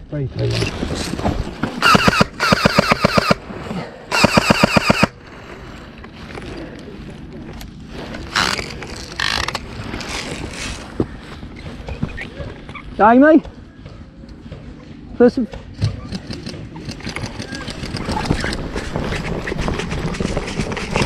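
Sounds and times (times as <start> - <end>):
rustling and movement: 0.0 - 21.0
airsoft rifle automatic bursts: 1.8 - 3.4, 4.1 - 5.2.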